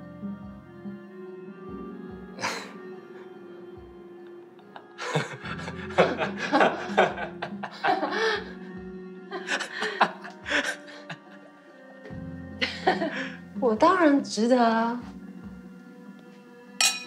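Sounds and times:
soft background music: 0:00.0 - 0:17.0
man and woman laughing: 0:04.3 - 0:08.7, 0:09.3 - 0:11.5, 0:12.6 - 0:13.4.

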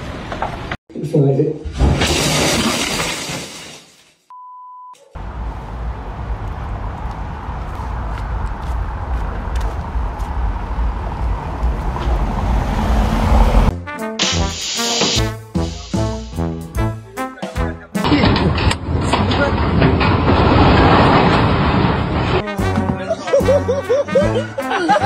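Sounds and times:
street noise with low rumble: 0:00.0 - 0:00.8, 0:05.1 - 0:13.7
steady beep tone: 0:04.3 - 0:05.0
music: 0:13.7 - 0:18.8, 0:22.4 - 0:25.0.

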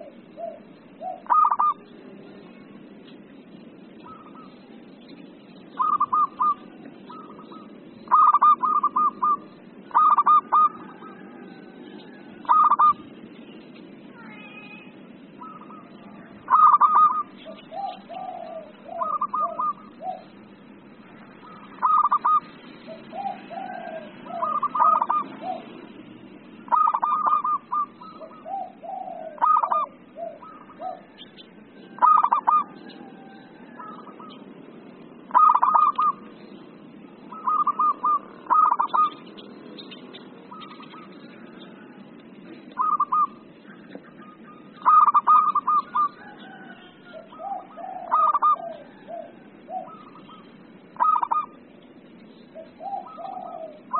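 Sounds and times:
dove cooing: 0:00.0 - 0:02.8, 0:03.5 - 0:13.2, 0:14.2 - 0:53.9.

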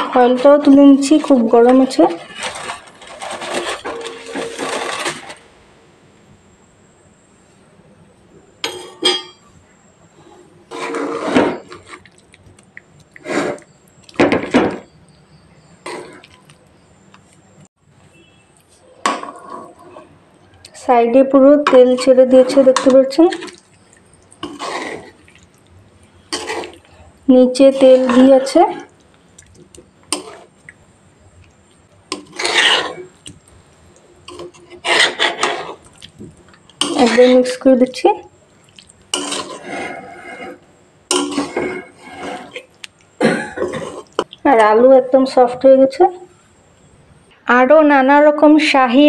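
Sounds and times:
metal spatula scraping metal pan: 0:00.0 - 0:05.4, 0:10.7 - 0:12.0, 0:24.4 - 0:25.2, 0:26.2 - 0:26.9, 0:27.5 - 0:28.9, 0:30.1 - 0:30.5, 0:32.1 - 0:33.2, 0:34.3 - 0:35.8, 0:36.8 - 0:37.6, 0:39.1 - 0:42.7.

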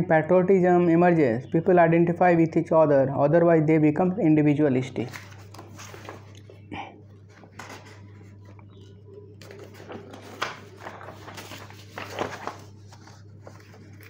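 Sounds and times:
steady low hum: 0:00.0 - 0:14.0
paper pages rustling: 0:04.9 - 0:14.0.

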